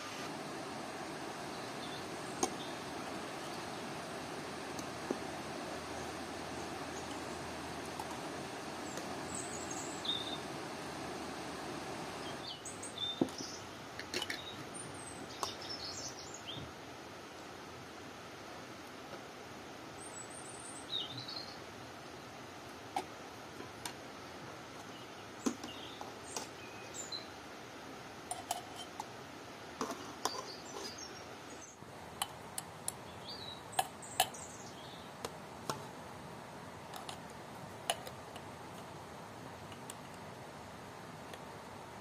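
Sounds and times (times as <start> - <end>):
small birds chirping: 1.0 - 16.7, 20.0 - 21.7, 24.8 - 27.4, 30.1 - 31.8, 32.5 - 35.3.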